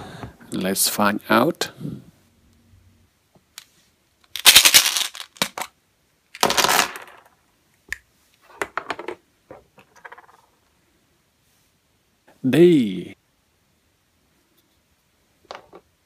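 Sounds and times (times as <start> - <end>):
plastic egg popping open: 4.3 - 5.7
candies clattering on a tabletop: 4.3 - 5.8, 6.4 - 7.4, 8.5 - 10.6, 15.4 - 15.9.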